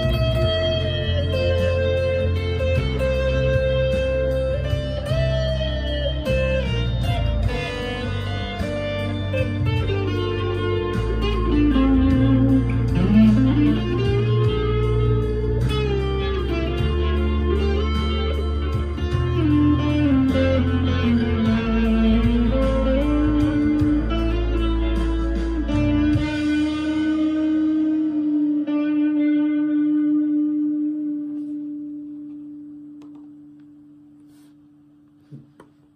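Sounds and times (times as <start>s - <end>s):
distorted electric guitar riffs: 0.0s - 35.8s.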